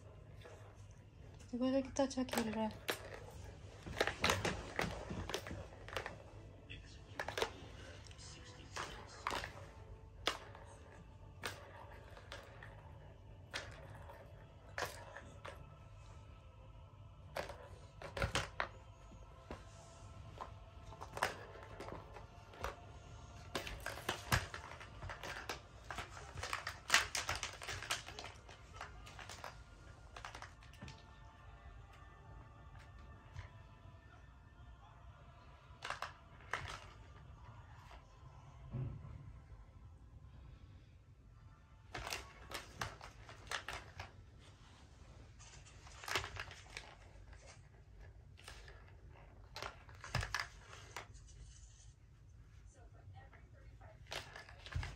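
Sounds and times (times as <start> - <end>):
plastic cat toy clicking and rattling: 1.9 - 6.4, 7.2 - 15.8, 17.3 - 18.7, 20.4 - 31.1, 35.7 - 37.2, 37.8 - 38.0, 41.9 - 44.2, 45.4 - 51.2, 54.0 - 54.9
plastic cat toy clicking and knocking: 23.4 - 31.0, 35.8 - 37.1.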